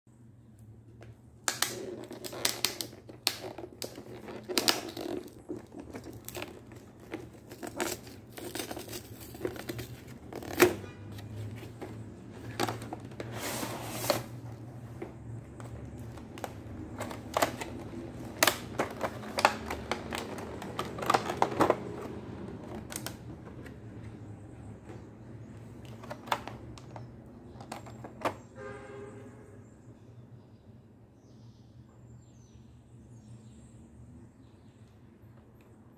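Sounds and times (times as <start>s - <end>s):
plastic packaging crackling: 1.5s - 14.7s, 15.4s - 23.7s.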